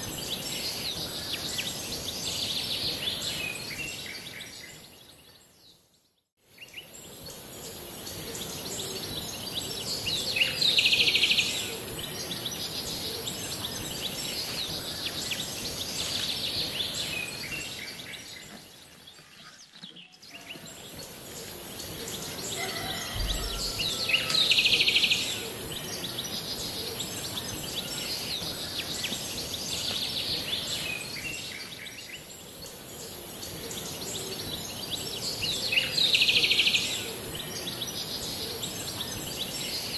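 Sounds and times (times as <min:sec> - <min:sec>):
birds chirping: 0:06.8 - 0:39.9
high-pitched insect hiss: 0:20.6 - 0:31.6.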